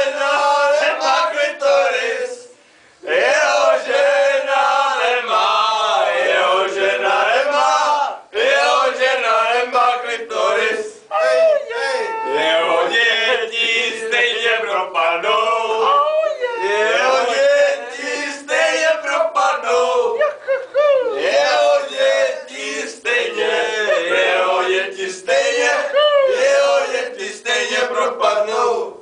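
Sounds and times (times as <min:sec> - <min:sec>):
group of men chanting: 0:00.0 - 0:11.0, 0:12.3 - 0:20.2, 0:21.2 - 0:29.0.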